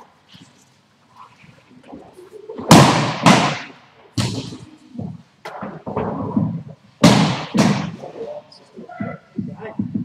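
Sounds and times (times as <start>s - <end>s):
ball hitting rink boards: 1.9s - 8.2s.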